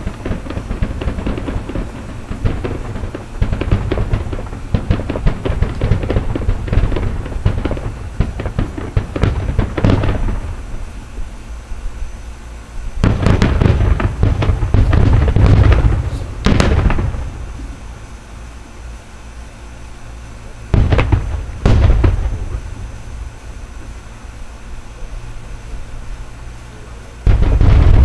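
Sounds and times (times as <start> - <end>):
fireworks booming and crackling: 0.0 - 28.0.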